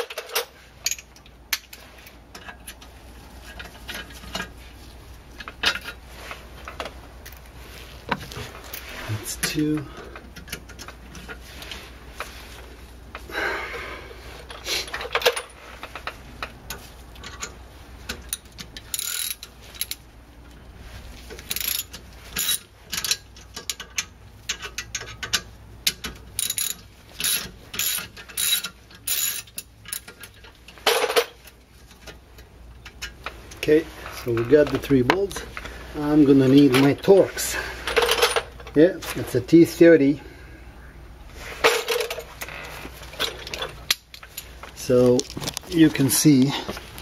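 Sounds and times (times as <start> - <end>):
ratchet wrench clicking: 18.2 - 20.0, 21.4 - 30.1.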